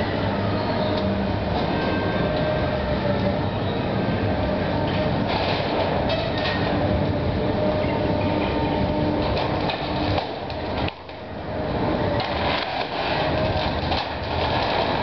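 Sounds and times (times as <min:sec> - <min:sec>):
excavator engine and hydraulic hum: 0:00.0 - 0:15.0
debris clattering and knocking: 0:12.2 - 0:15.0.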